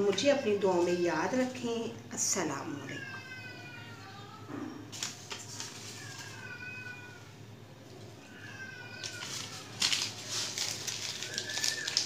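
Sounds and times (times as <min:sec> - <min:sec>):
rustling crackling noise: 0:04.9 - 0:06.6, 0:08.9 - 0:12.0.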